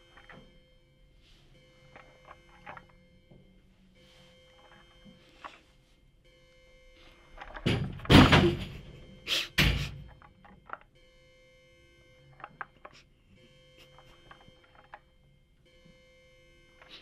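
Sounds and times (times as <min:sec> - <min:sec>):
door banging: 0:07.6 - 0:10.3.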